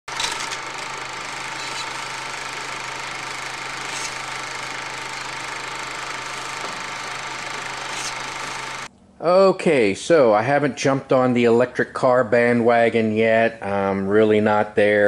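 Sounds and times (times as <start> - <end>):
machine running with low hum: 0.0 - 8.9
faint mechanical clatter: 0.1 - 8.9.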